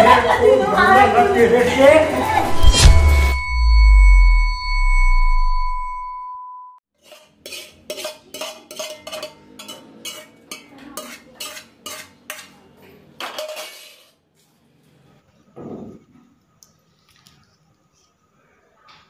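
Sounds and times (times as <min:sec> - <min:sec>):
spoon scraping frying pan: 0:07.0 - 0:12.6, 0:13.3 - 0:14.2
clinks on steel plate: 0:07.1 - 0:12.5, 0:13.2 - 0:14.0.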